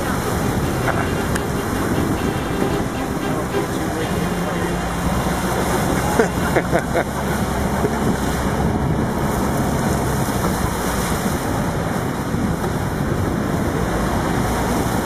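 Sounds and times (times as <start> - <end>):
water splashing around wheels: 4.2 - 15.0.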